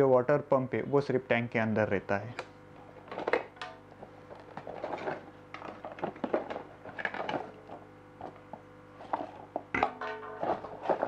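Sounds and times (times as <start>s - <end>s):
cardboard and plastic rustling: 4.0s - 9.7s, 10.4s - 11.0s.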